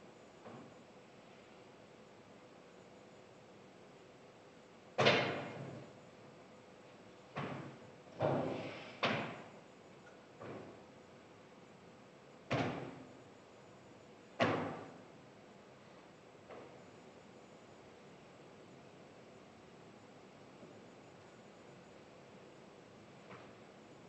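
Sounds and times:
sharp thuds in a room: 5.0s - 5.8s, 7.3s - 9.5s, 12.5s - 13.1s, 14.4s - 15.0s.

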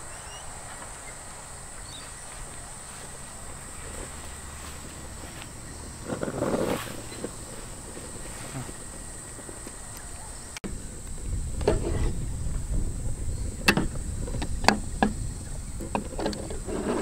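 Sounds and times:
low rumble: 0.0s - 16.7s
insect chirring: 0.0s - 17.0s
sharp knocks and clicks: 13.6s - 15.2s.

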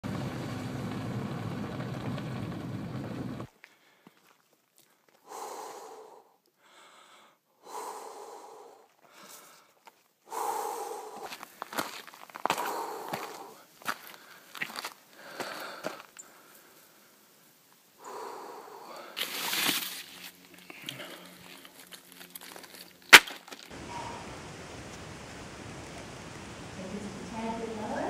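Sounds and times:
person breathing hard: 5.0s - 17.3s, 18.0s - 19.5s, 20.6s - 21.8s
footsteps on gravel: 11.2s - 16.2s, 19.2s - 23.8s
low rushing noise: 23.7s - 28.0s.

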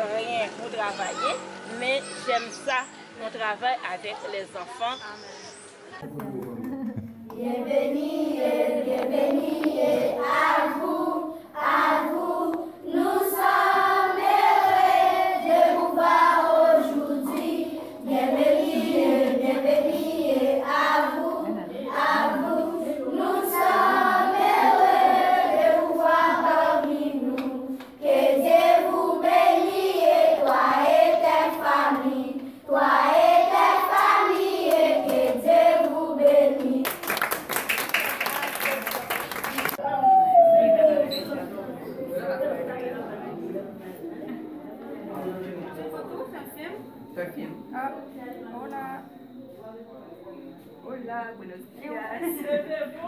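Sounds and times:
people clapping: 6.0s - 7.6s, 33.8s - 39.8s
children singing in unison: 7.4s - 37.0s.

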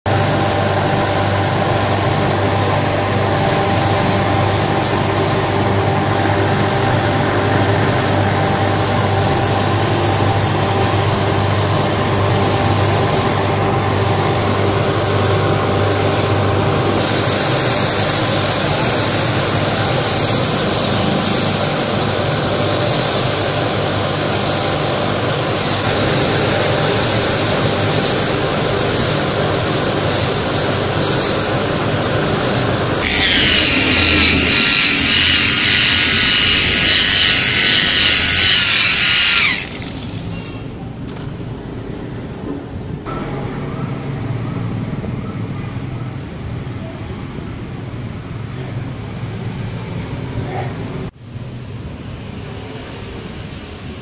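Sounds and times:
paint sprayer hissing: 0.2s - 2.8s, 17.0s - 21.9s, 32.4s - 40.6s
motor hum: 33.0s - 40.7s.

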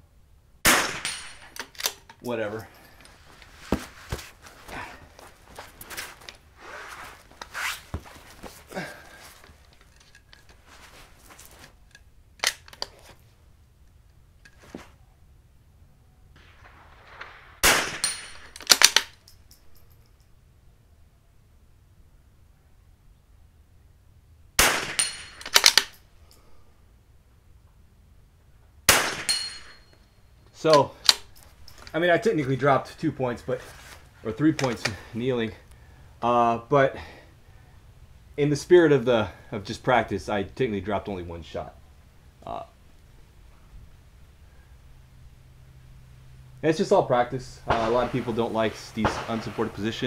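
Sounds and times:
rifle shot: 0.6s - 2.0s, 16.4s - 19.1s, 24.6s - 25.9s, 28.9s - 29.9s, 47.6s - 50.0s
rifle bolt clicks: 1.5s - 2.2s, 11.9s - 12.9s, 18.6s - 19.3s, 25.4s - 26.0s, 30.7s - 31.4s
clothes rustling on mat: 2.8s - 9.7s, 10.5s - 11.8s, 33.5s - 34.2s.

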